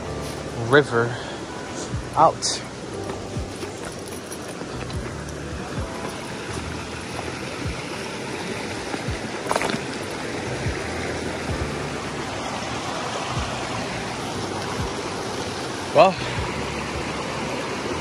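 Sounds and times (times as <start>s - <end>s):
river rushing over rocks: 0.0s - 18.0s
footsteps on river stones: 2.8s - 16.6s
stone clacking: 8.9s - 10.2s.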